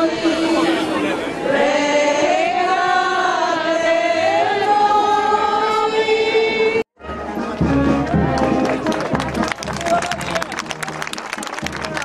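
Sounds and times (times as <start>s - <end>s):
crowd singing a hymn: 0.0s - 6.8s.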